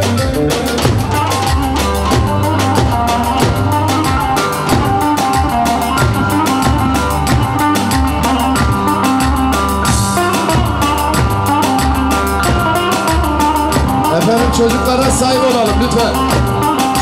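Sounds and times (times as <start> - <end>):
amplified melody line: 0.0 - 17.0
bass drum beating: 0.0 - 17.0.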